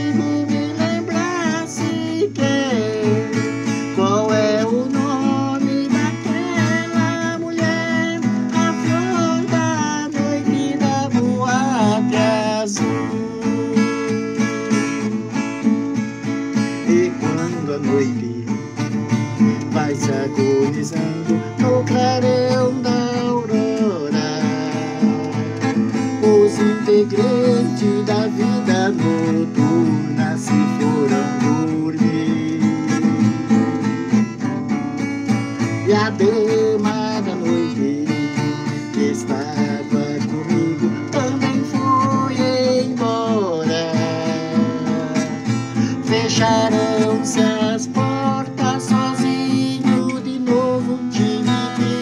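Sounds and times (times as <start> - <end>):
acoustic guitar strumming: 0.0 - 52.0.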